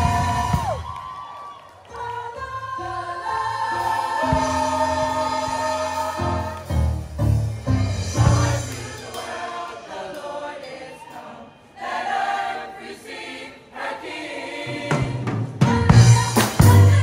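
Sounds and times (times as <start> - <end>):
school choir singing: 0.0 - 0.7, 1.9 - 6.9, 7.9 - 17.0
bass and drums: 0.0 - 1.0, 3.9 - 9.1, 14.9 - 17.0.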